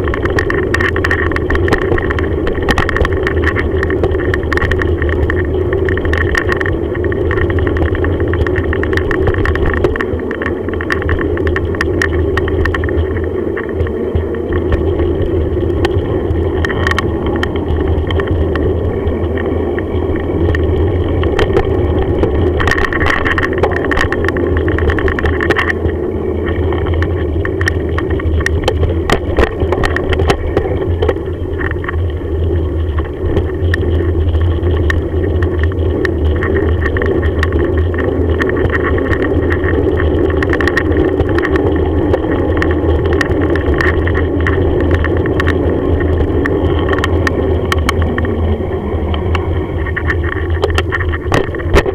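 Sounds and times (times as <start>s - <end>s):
bicycle tyres rumbling on tarmac: 0.0s - 51.9s.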